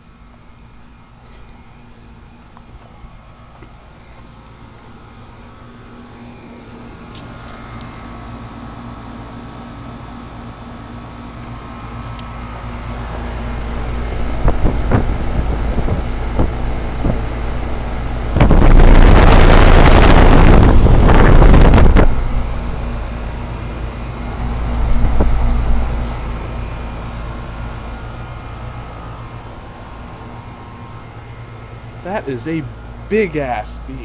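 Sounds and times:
heat pump low hum: 0.0 - 34.0
air buffeting microphone: 13.0 - 23.5, 24.2 - 27.0.

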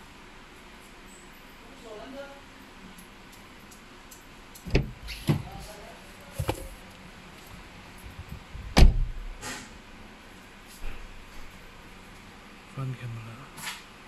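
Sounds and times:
dull knocks and thumps: 6.4 - 6.8.

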